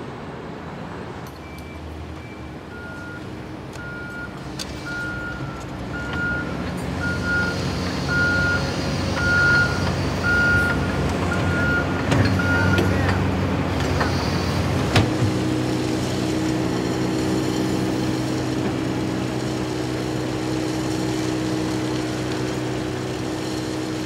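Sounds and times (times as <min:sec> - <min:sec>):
backup alarm beeping: 0:01.4 - 0:08.6
machine engines running: 0:03.7 - 0:24.0.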